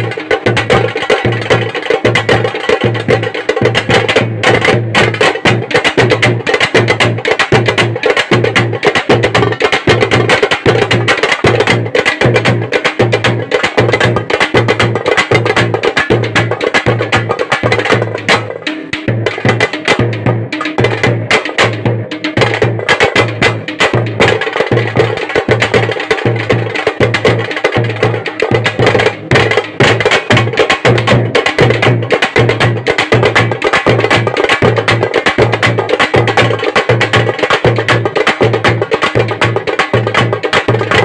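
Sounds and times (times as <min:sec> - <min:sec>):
frame drums beaten fast with sticks: 0:00.0 - 0:41.0
steady deeper drum beat: 0:00.0 - 0:41.0.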